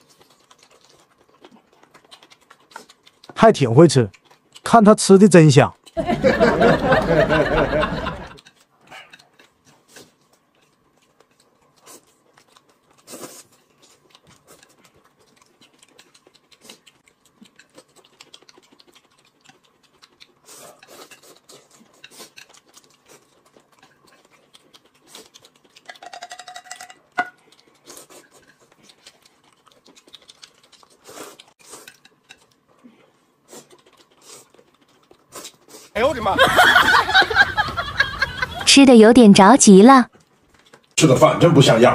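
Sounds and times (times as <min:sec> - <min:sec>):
chewing: 0:00.0 - 0:06.0, 0:08.2 - 0:36.0, 0:40.1 - 0:41.0
noodle slurping: 0:09.2 - 0:15.0, 0:16.0 - 0:25.9, 0:27.4 - 0:36.0
person speaking: 0:36.0 - 0:36.5, 0:38.6 - 0:40.1.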